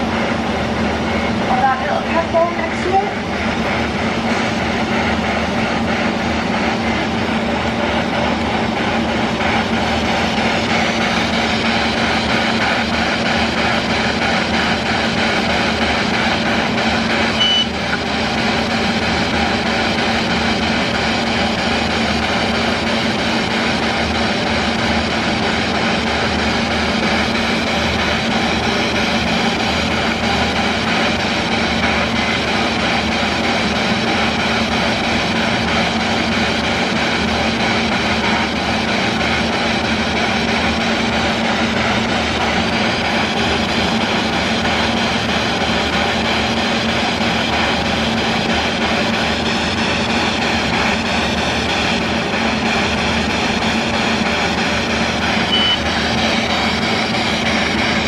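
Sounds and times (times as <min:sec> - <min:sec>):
steady hum: 0:00.0 - 0:58.0
short high beep: 0:17.4 - 0:17.8, 0:55.5 - 0:55.8.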